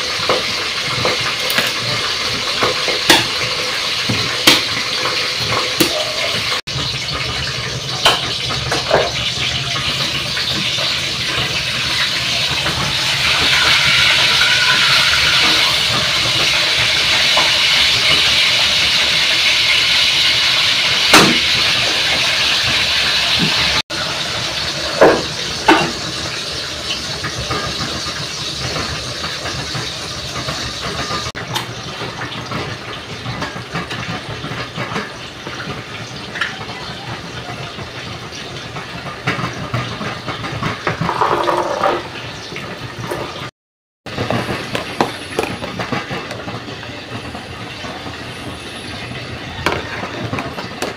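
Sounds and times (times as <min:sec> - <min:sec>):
pot lids and utensils knocking: 0:00.2 - 0:06.6, 0:07.9 - 0:11.6, 0:24.9 - 0:26.0, 0:39.2 - 0:42.2, 0:44.1 - 0:47.4, 0:49.5 - 0:50.9
light kitchen clatter: 0:00.2 - 0:18.4.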